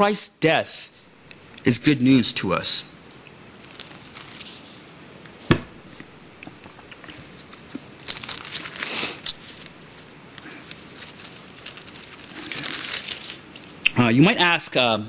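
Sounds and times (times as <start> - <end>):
paper rustling and crinkling: 3.6 - 6.1, 7.0 - 13.8
sharp knock: 5.5 - 5.8.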